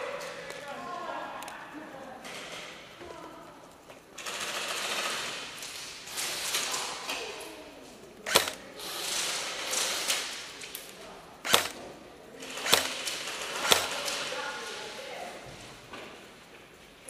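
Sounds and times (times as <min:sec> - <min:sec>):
airsoft guns full-auto bursts: 0:04.2 - 0:06.7, 0:08.2 - 0:10.6, 0:11.4 - 0:11.8, 0:12.4 - 0:15.0
sharp loud cracks: 0:11.4 - 0:14.4.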